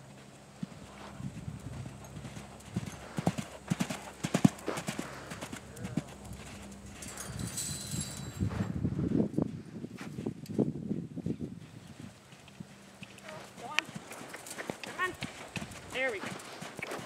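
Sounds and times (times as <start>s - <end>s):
horse hoofbeats on sand: 0.0s - 17.0s.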